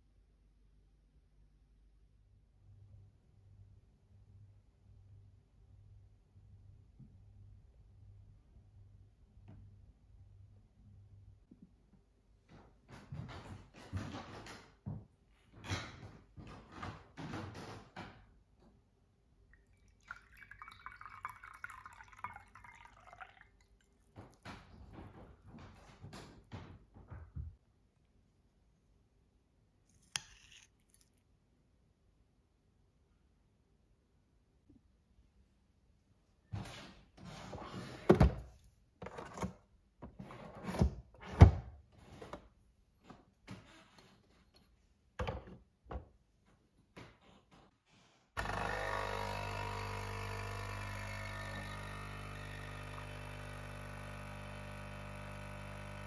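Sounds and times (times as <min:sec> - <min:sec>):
tea pouring into a cup: 0:19.5 - 0:24.4, 0:51.2 - 0:56.0.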